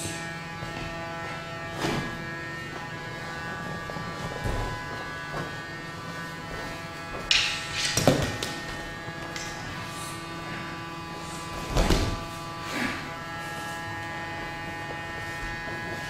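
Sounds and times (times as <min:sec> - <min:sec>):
steady electrical buzz: 0:00.0 - 0:16.0.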